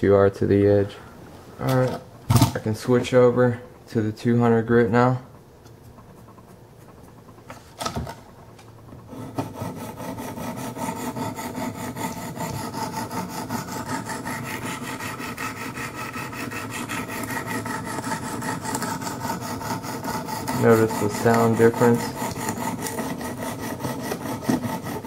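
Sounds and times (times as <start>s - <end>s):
sharpening stone scraping blade: 9.5s - 25.0s.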